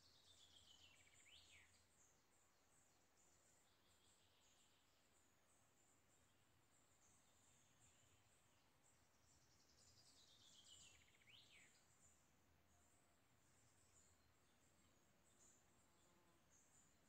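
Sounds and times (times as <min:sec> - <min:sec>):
bird singing a trill: 0:00.0 - 0:12.2.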